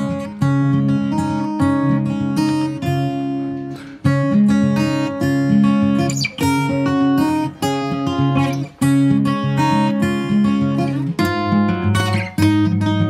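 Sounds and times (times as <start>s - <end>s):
strummed guitar chords: 0.0s - 13.0s.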